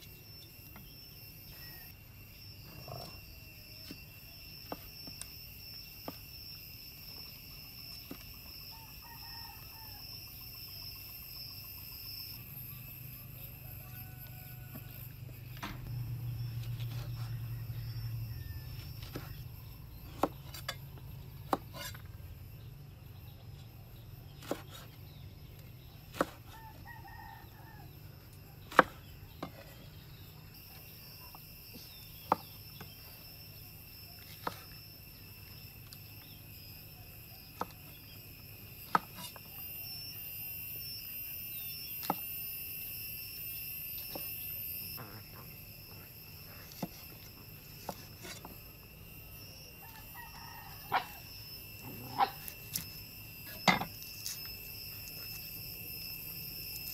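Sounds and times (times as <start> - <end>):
high insect drone: 0.0 - 56.9
knife chopping on wooden board: 24.4 - 24.8.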